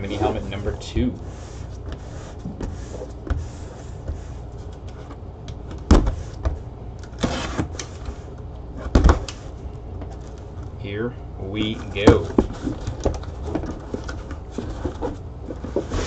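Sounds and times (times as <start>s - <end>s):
cardboard scraping rustle: 0.0s - 5.2s, 7.1s - 9.0s, 11.6s - 16.0s.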